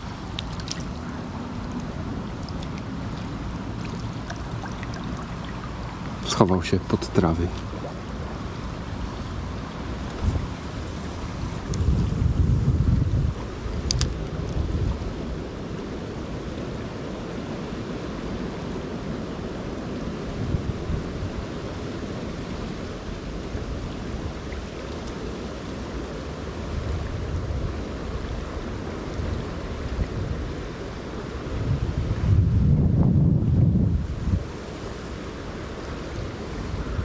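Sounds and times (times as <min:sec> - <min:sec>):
wind buffeting microphone: 0:00.0 - 0:15.7, 0:26.7 - 0:35.0
river rushing: 0:00.0 - 0:32.2, 0:33.9 - 0:37.0.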